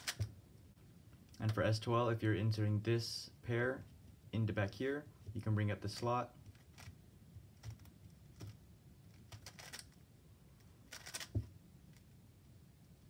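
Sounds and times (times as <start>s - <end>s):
plastic puzzle clicks: 0.0s - 0.3s, 7.6s - 10.0s, 10.9s - 11.3s.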